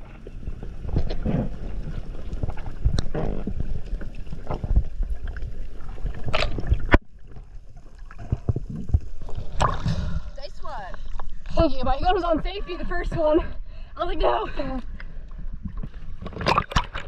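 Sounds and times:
muffled underwater water movement: 0.0s - 13.8s
underwater knocks and thuds: 0.8s - 10.2s, 15.5s - 17.0s.

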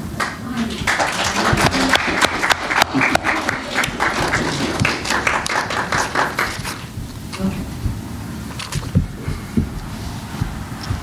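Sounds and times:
audience applauding: 0.2s - 6.9s.

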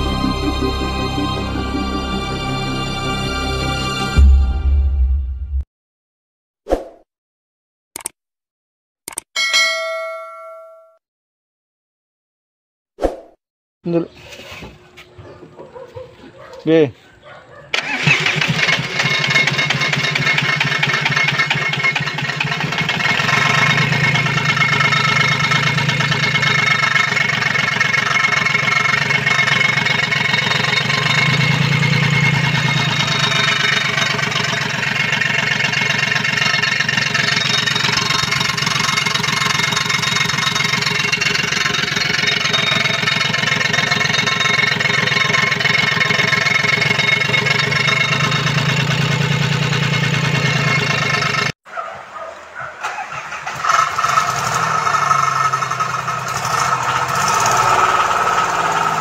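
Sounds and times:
diesel engine running: 0.0s - 5.6s, 17.8s - 51.6s, 52.8s - 59.0s.

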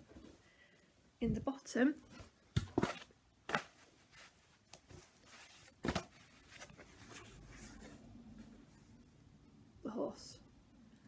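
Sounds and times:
cloth rustling: 2.1s - 8.9s.

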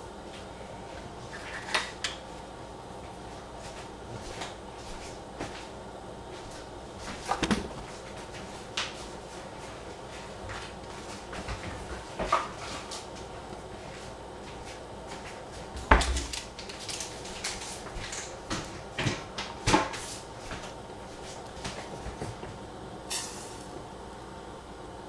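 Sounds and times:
kitchen knocks and clatters: 7.2s - 7.9s, 15.8s - 20.6s.

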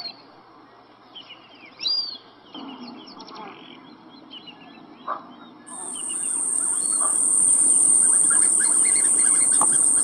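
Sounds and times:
birds chirping faintly: 5.7s - 10.0s
insect buzzing: 5.7s - 10.0s.

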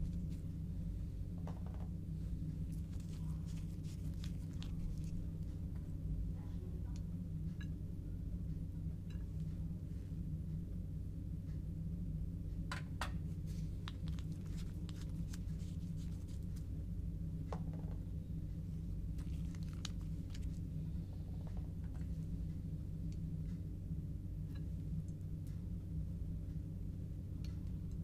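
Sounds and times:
steady low hum: 0.0s - 28.0s
hands handling plastic and glass: 2.7s - 5.3s, 13.5s - 16.6s.

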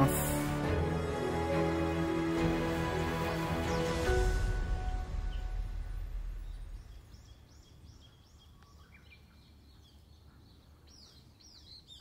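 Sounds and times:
background music: 0.0s - 7.1s
low rumble: 4.1s - 7.7s
small birds chirping: 5.0s - 12.0s.

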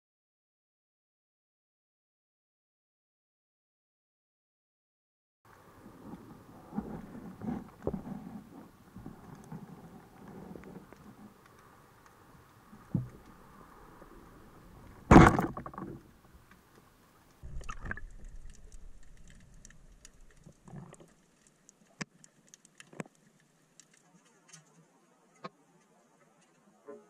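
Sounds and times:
faint clicks against rocks: 5.5s - 13.6s, 14.8s - 26.7s
low water hiss: 5.5s - 15.1s, 15.9s - 27.0s.

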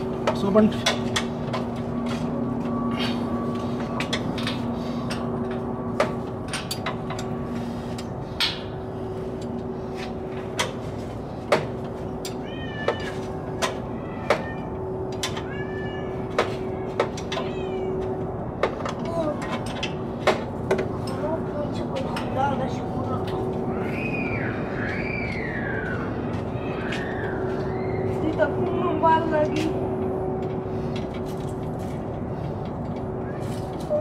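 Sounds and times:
steady hum: 0.0s - 34.0s
spanner clinking against metal: 3.9s - 7.4s.

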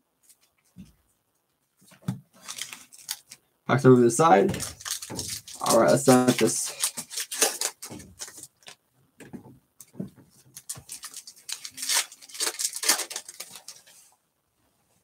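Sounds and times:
foil wrapper crinkling: 2.4s - 3.4s, 4.4s - 8.8s, 10.4s - 14.1s.

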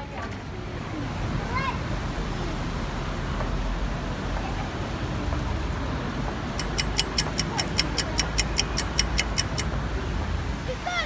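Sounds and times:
traffic on a wet road: 0.0s - 11.0s
rapid even ticking: 6.6s - 9.7s.

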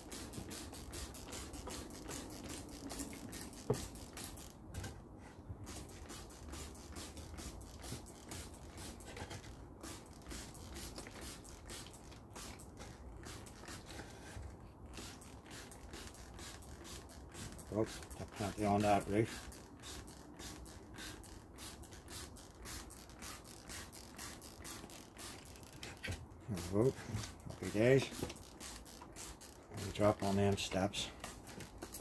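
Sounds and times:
spray bottle squirting: 0.0s - 4.6s, 5.7s - 14.2s, 14.9s - 32.0s.

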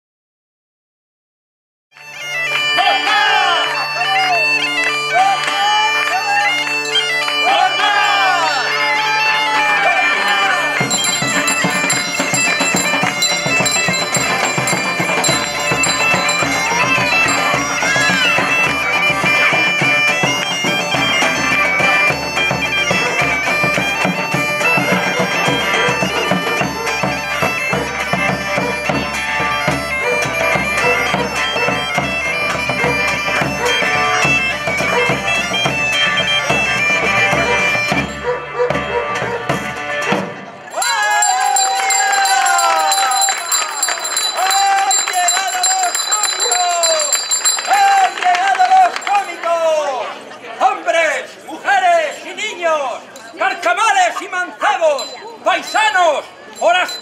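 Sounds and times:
bagpipe music: 2.0s - 49.5s
drums: 10.7s - 48.2s.

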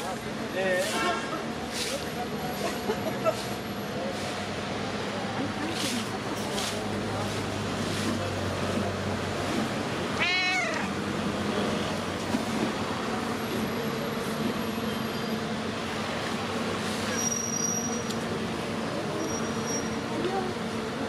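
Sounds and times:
cat meowing: 10.1s - 11.0s.

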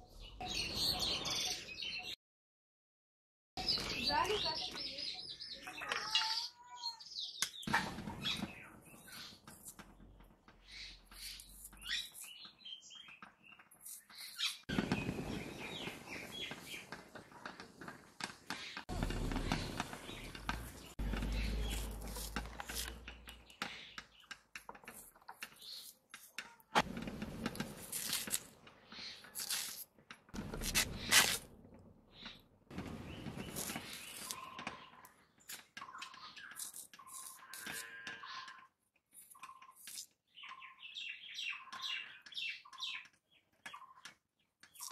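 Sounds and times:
blade scraping and cutting potato: 10.7s - 12.6s, 19.0s - 31.5s.

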